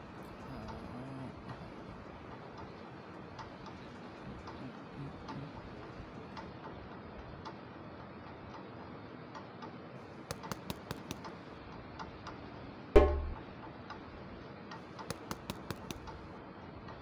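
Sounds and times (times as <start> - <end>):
sharp clicks: 10.2 - 11.4, 14.7 - 16.2.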